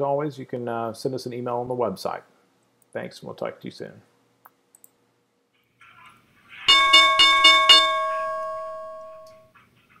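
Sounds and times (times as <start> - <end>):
bell-like chime strikes: 6.7 - 9.5.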